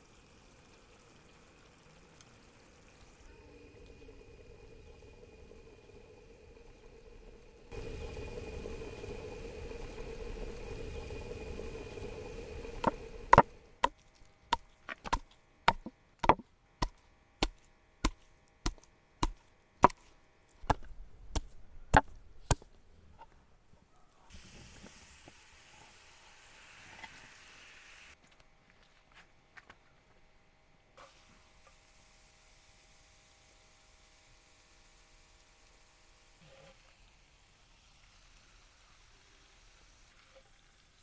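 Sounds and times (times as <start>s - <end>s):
steady hiss: 0.0s - 13.9s, 24.3s - 28.2s, 31.0s - 41.0s
faint hum: 0.0s - 24.3s
knife chopping on wooden board: 15.0s - 20.0s.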